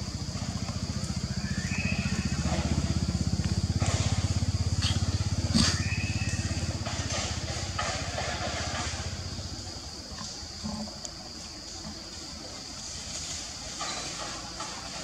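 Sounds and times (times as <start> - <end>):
motorcycle engine puttering: 0.0 - 11.2.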